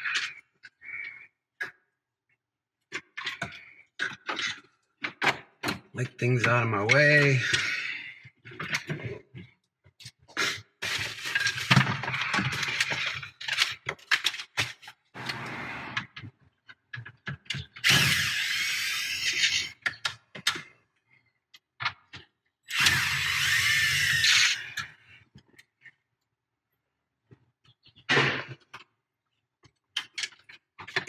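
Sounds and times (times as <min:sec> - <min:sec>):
plastic parts clicking and rattling: 0:02.8 - 0:15.3, 0:16.0 - 0:26.0, 0:29.6 - 0:31.0
cordless drill running: 0:17.8 - 0:19.4, 0:22.7 - 0:24.7.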